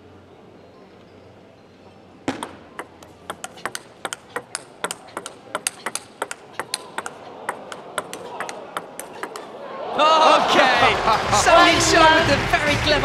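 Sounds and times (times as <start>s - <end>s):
ping pong ball bouncing on table: 2.3s - 9.5s
ping pong ball hitting bats: 2.3s - 9.5s.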